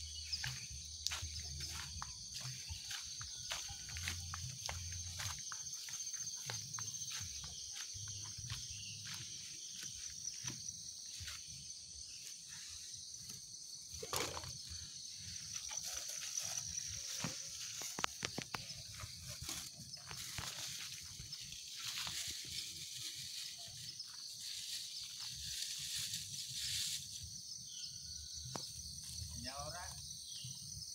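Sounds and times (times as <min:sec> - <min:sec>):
high insect trill: 0:00.0 - 0:30.9
leaves and plastic bags crinkling: 0:15.5 - 0:27.3.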